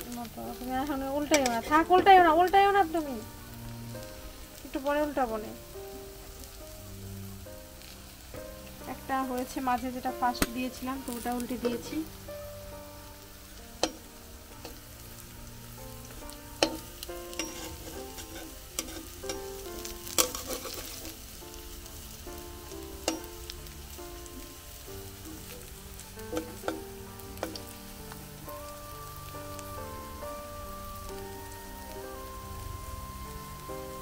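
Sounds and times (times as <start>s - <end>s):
background music: 0.0s - 34.0s
oil sizzling: 0.0s - 34.0s
metal spatula clacking on pan: 16.6s - 19.5s, 20.1s - 21.0s.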